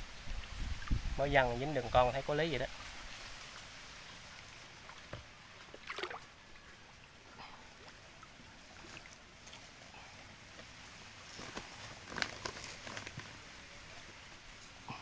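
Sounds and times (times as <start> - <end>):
water lapping and splashing: 0.0 - 15.0
short splash: 5.7 - 6.3.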